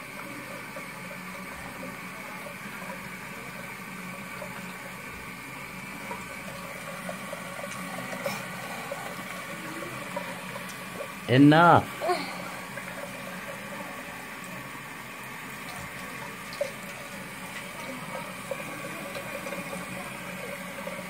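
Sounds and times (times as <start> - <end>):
tap water running into sink: 0.0 - 21.0.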